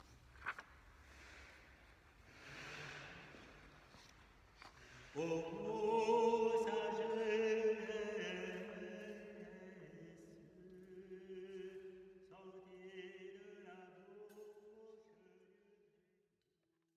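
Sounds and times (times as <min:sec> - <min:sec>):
chant on long held notes: 0:05.1 - 0:14.4.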